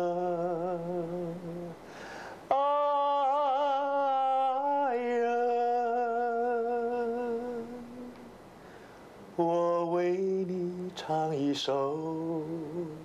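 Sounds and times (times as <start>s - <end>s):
man singing unaccompanied: 0.0s - 8.4s, 9.3s - 13.0s.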